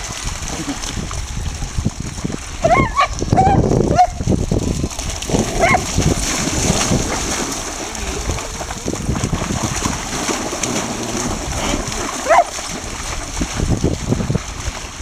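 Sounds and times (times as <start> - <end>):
dogs splashing through water: 0.0 - 15.0
dog barking: 2.6 - 4.2, 5.6 - 5.8, 12.2 - 12.5.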